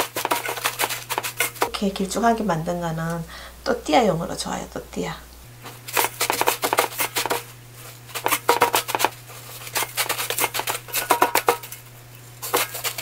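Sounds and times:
crunchy rustling of breadcrumbs: 0:00.0 - 0:01.7, 0:05.7 - 0:13.0.

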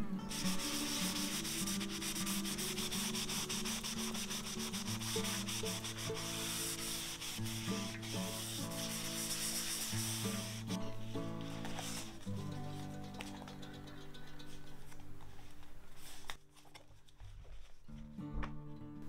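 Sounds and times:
soft background music: 0:00.0 - 0:19.0
cloth rubbing on cardstock: 0:00.3 - 0:12.3.

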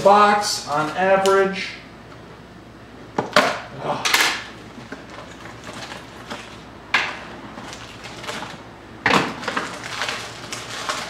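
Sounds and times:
cardboard and wrapper rustling: 0:04.7 - 0:06.7, 0:07.5 - 0:11.0.

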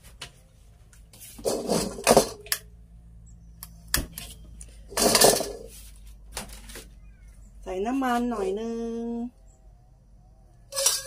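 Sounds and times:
metal spatula scraping a wok: 0:10.7 - 0:11.0.

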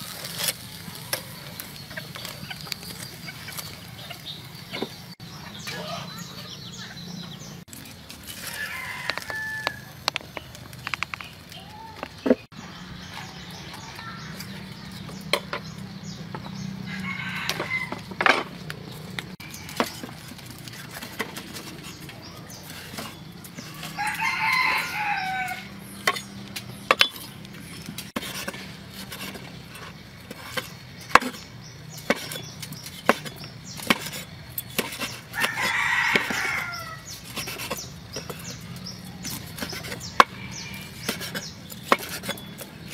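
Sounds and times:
roosters crowing: 0:08.3 - 0:10.4, 0:16.0 - 0:21.0, 0:22.6 - 0:27.8, 0:32.1 - 0:42.9
blade chopping meat on wood: 0:28.0 - 0:38.6, 0:39.2 - 0:42.9.

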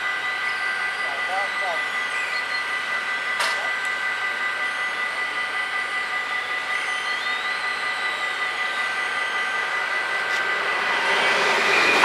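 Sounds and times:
level-crossing bells ringing: 0:00.4 - 0:07.0.

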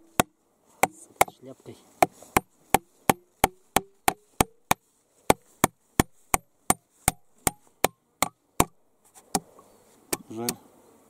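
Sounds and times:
hammer driving nail into wood: 0:02.4 - 0:04.8, 0:05.6 - 0:09.5.

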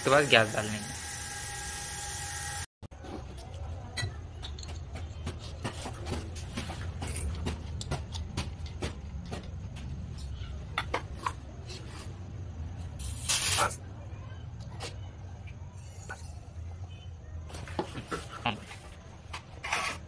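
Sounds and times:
fittings clicking and tapping: 0:06.6 - 0:10.0
gas hissing from fittings: 0:12.9 - 0:13.8.

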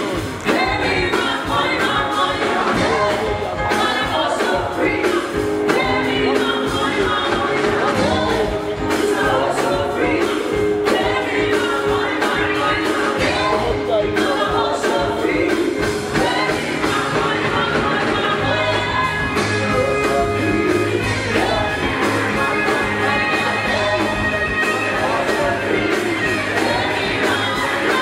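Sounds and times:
electric guitar: 0:00.0 - 0:28.0
steady drum beat: 0:00.0 - 0:28.0
woman singing into microphone: 0:00.0 - 0:28.0.

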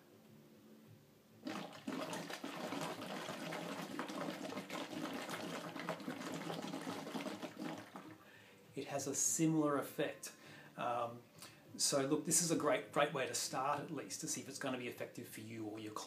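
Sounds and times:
water bubbling in a bottle: 0:01.4 - 0:08.2.

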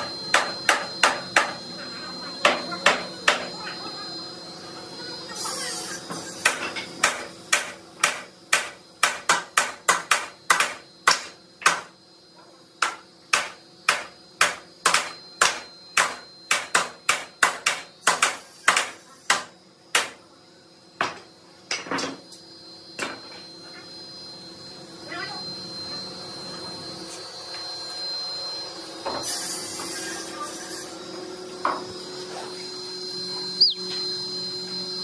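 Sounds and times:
hammer striking wooden frame: 0:00.3 - 0:01.6, 0:02.4 - 0:03.5, 0:06.4 - 0:11.9, 0:12.8 - 0:20.2.

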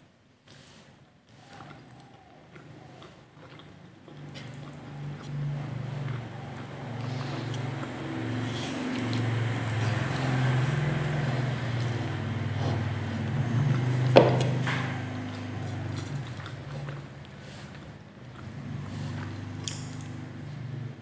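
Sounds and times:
low droning hum: 0:04.2 - 0:21.0.

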